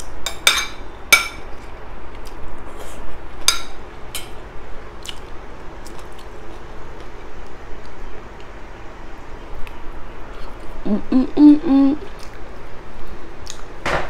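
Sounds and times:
chewing and eating sounds: 0:04.9 - 0:08.6, 0:12.0 - 0:13.7.

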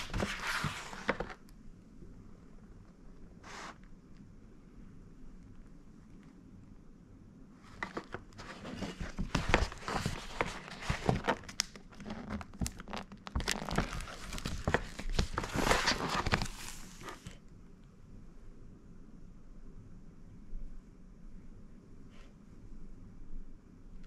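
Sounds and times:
crinkling and rustling: 0:00.0 - 0:01.5, 0:07.7 - 0:17.4.

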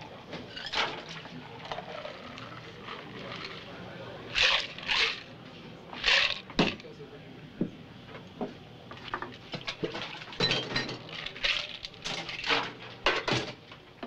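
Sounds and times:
drink being poured: 0:00.1 - 0:05.3
ice rattling in cocktail shaker: 0:00.5 - 0:05.3, 0:06.0 - 0:06.8, 0:09.1 - 0:12.7
barware clinking on counter: 0:09.1 - 0:13.5.

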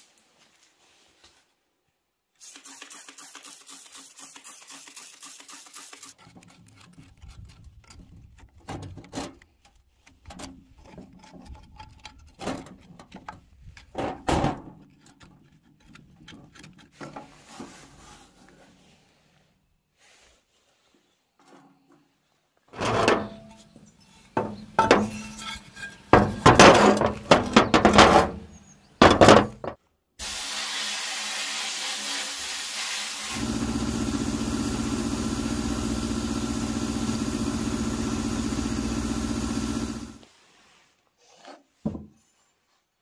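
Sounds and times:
knocks and scrapes: 0:06.2 - 0:18.9, 0:20.8 - 0:29.8
blasting gun hiss: 0:30.2 - 0:40.2
steady motor hum: 0:33.3 - 0:40.2.

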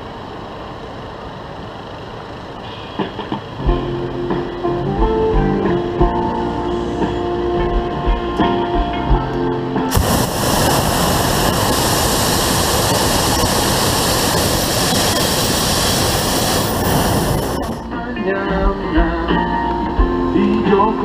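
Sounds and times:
guitar music: 0:02.8 - 0:21.0
propane burner blast: 0:09.9 - 0:17.9.

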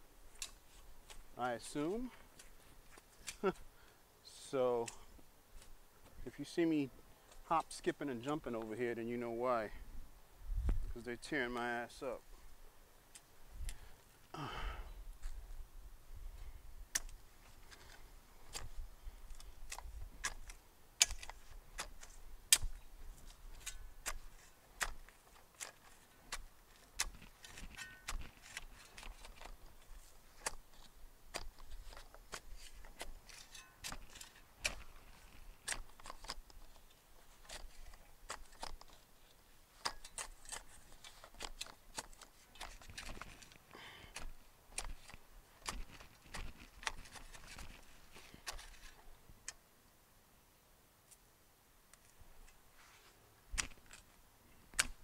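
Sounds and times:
spade digging into soil: 0:19.3 - 0:49.1.

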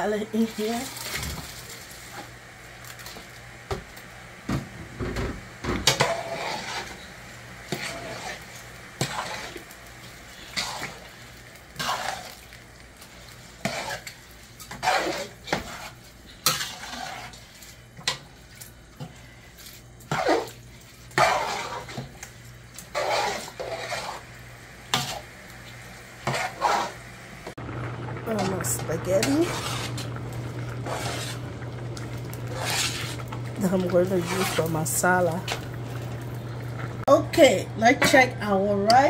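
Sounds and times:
metal spoon scraping a metal pot: 0:05.8 - 0:07.1, 0:13.6 - 0:18.2, 0:20.1 - 0:22.1, 0:22.8 - 0:24.2, 0:29.2 - 0:30.1, 0:30.8 - 0:31.4, 0:32.5 - 0:34.8.

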